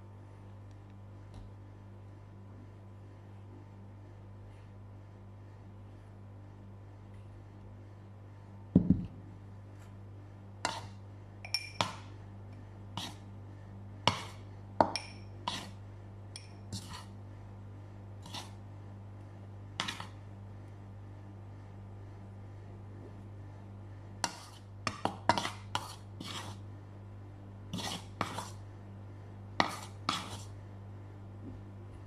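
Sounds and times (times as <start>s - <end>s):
steady low hum: 0.0s - 32.0s
bowls and utensils clinking: 11.4s - 12.0s, 14.8s - 15.6s, 16.3s - 17.0s.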